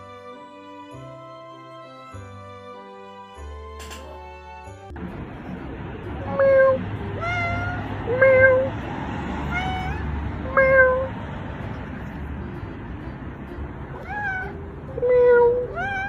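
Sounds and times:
cat meowing: 0:06.2 - 0:08.7, 0:09.4 - 0:11.1, 0:13.9 - 0:16.0.

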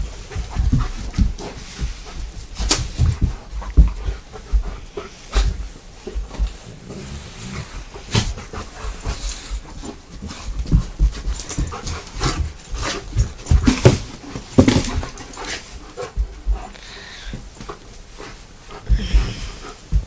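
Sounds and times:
dog panting: 0:00.0 - 0:20.0.

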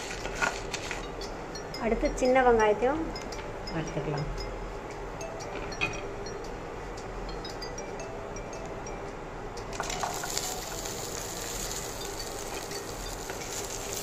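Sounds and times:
lentils crackling in oil: 0:09.8 - 0:14.0
oil sizzling: 0:09.8 - 0:14.0.

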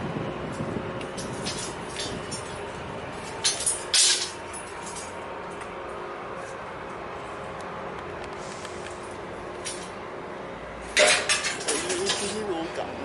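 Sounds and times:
ship machinery drone: 0:00.0 - 0:13.0.

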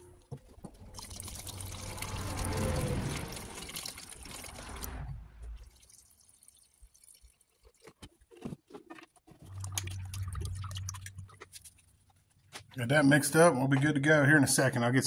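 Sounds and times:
liquid pouring into plastic bucket: 0:00.4 - 0:11.8
stir stick in bucket: 0:06.8 - 0:13.9.

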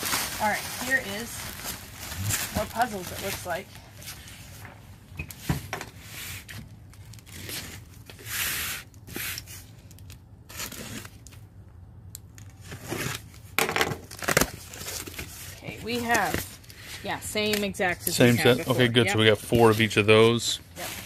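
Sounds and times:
packing tape tearing: 0:00.0 - 0:03.6, 0:06.5 - 0:11.5, 0:12.2 - 0:15.4
cardboard scraping and rustling: 0:12.4 - 0:13.3.

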